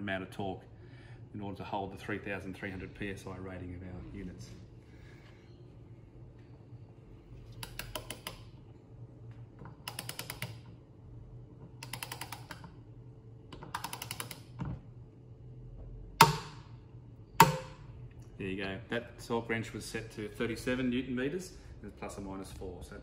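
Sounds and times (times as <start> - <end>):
sharp loud wrench clicks: 11.8 - 12.6, 13.7 - 14.5.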